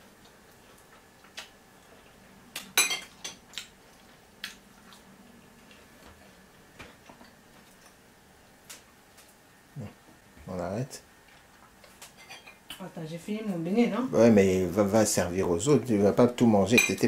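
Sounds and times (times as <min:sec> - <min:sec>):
metal spoon clinking on dishes: 0:02.8 - 0:03.4, 0:12.2 - 0:12.6, 0:16.7 - 0:17.0.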